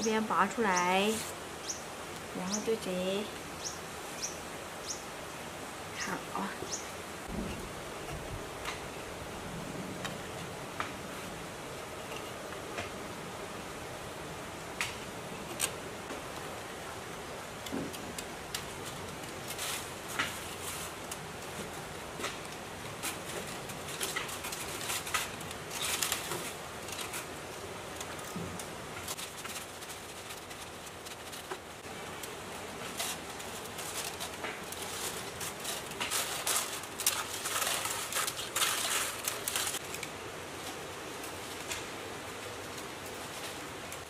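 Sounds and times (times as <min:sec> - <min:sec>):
wire rustling: 0:17.6 - 0:44.0.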